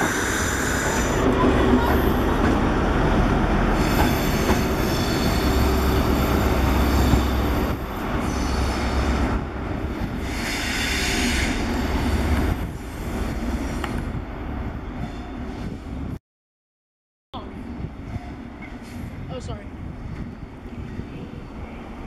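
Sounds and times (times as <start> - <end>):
diesel train engine rumbling: 0.0 - 16.2
train wheels squealing: 3.8 - 6.1.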